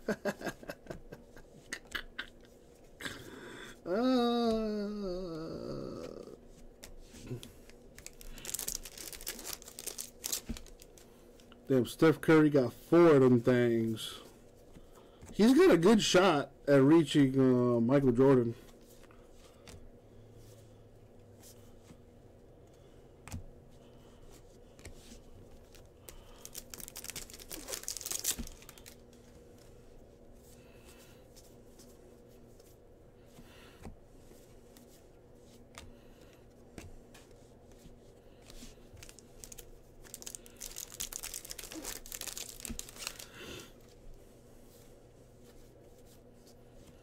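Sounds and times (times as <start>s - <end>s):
card wrappers tearing and crinkling: 7.6s - 11.1s, 25.5s - 29.2s, 38.8s - 43.7s.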